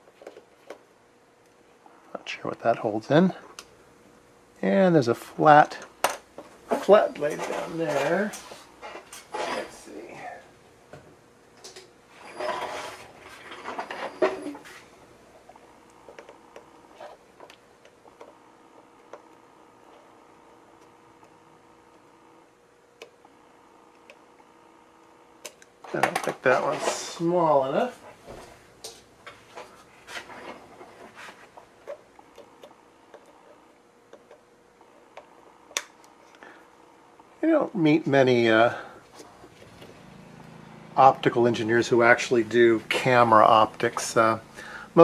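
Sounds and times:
scraping and clicking of tools: 0:11.6 - 0:14.8.

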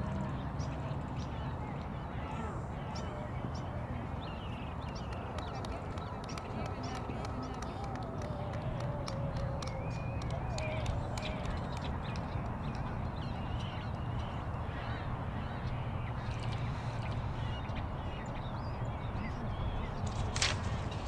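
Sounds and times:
small birds chirping: 0:00.0 - 0:21.0
brief rustle: 0:20.0 - 0:21.0.

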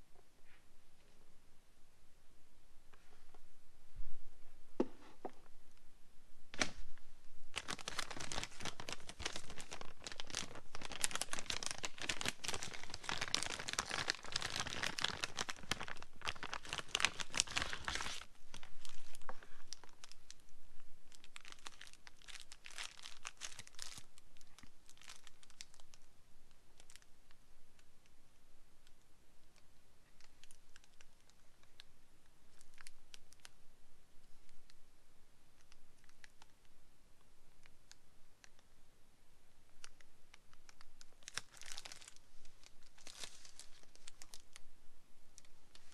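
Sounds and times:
plastic bag crinkling: 0:07.5 - 0:20.4, 0:21.1 - 0:26.0, 0:40.7 - 0:44.6.

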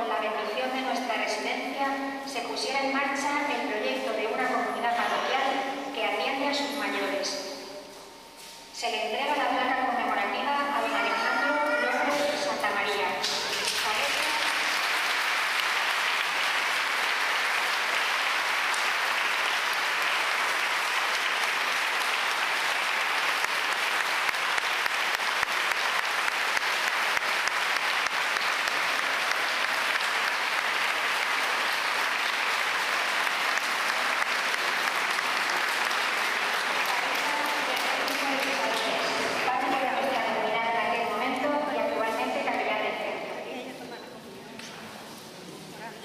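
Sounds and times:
audience applauding: 0:13.2 - 0:39.5.

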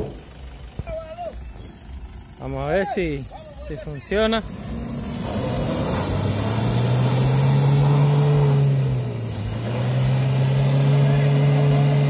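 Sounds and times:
truck engine revving: 0:00.0 - 0:02.8, 0:04.0 - 0:12.0.

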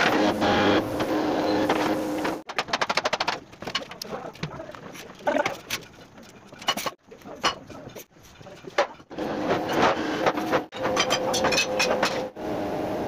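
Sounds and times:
loud steady humming noise: 0:09.2 - 0:13.0.

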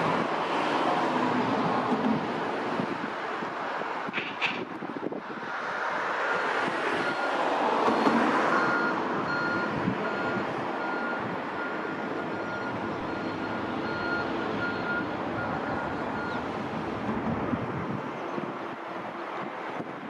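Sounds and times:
reversing alarm beeping: 0:08.5 - 0:16.4
steady rushing noise: 0:15.2 - 0:20.0.

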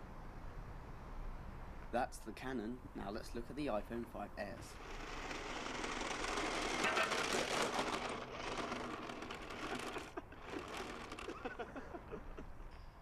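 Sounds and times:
toy car motor whirring: 0:04.6 - 0:11.6.

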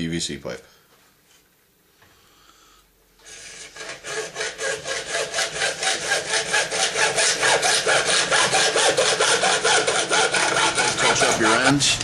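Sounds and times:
hacksaw cutting plastic pipe: 0:03.2 - 0:12.0.

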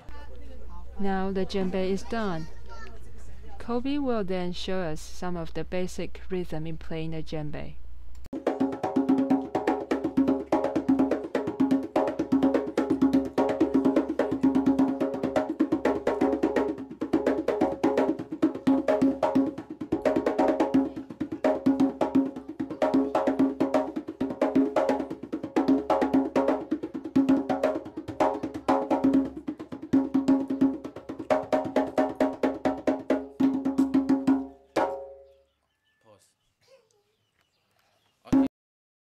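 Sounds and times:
hand drum rhythm: 0:08.3 - 0:35.2.

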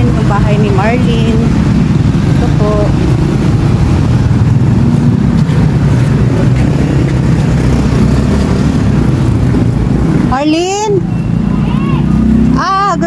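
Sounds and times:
cars running: 0:00.0 - 0:13.0
motorcycles running: 0:00.0 - 0:13.0
road traffic rumble: 0:00.0 - 0:13.0.

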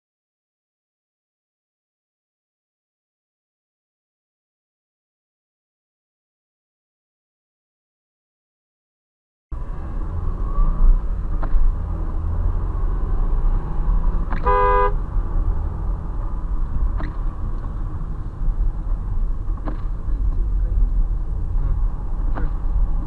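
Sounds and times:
car road and engine rumble: 0:09.5 - 0:23.0
car horn beep: 0:14.4 - 0:15.0.

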